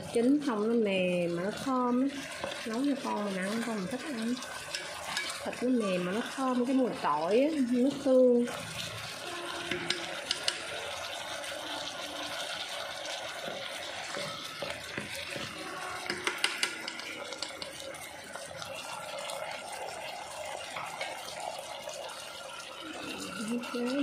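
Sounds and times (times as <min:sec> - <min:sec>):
spatula stirring sauce: 0:00.0 - 0:24.0
spatula knocking pot: 0:04.6 - 0:06.3, 0:09.6 - 0:10.8, 0:13.4 - 0:18.5.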